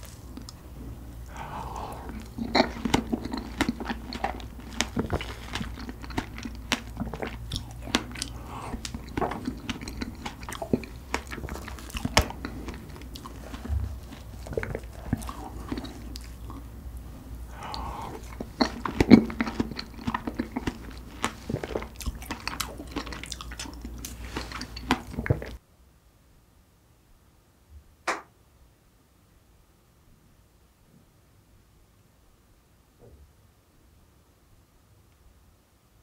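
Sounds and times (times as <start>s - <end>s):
wet chewing: 0.0s - 25.6s
lip smacks: 1.2s - 16.7s, 17.5s - 25.6s.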